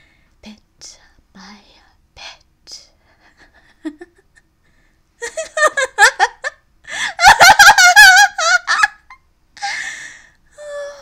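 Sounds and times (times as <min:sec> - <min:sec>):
person laughing: 0:03.5 - 0:04.5, 0:05.2 - 0:09.8.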